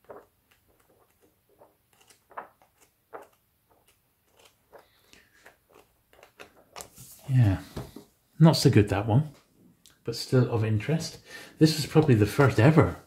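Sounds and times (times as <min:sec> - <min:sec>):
paper rustling: 0:00.0 - 0:08.0, 0:11.9 - 0:13.0.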